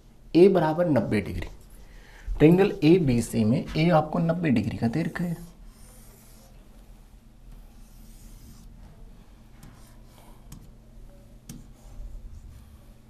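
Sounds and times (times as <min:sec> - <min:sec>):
low electrical hum: 0:00.0 - 0:13.0
stylus rubbing on screen: 0:04.7 - 0:10.8.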